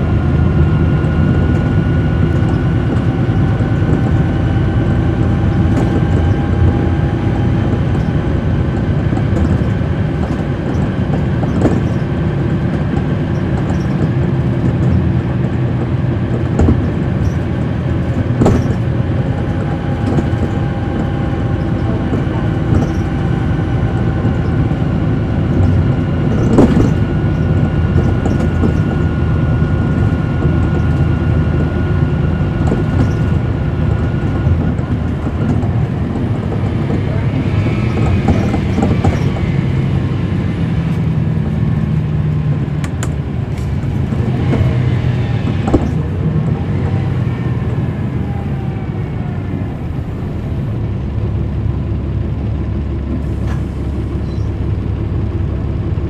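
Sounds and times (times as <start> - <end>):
bus diesel engine running: 0.0 - 56.0
faint engine whine: 0.0 - 56.0
body knocks and rattles: 5.2 - 39.5.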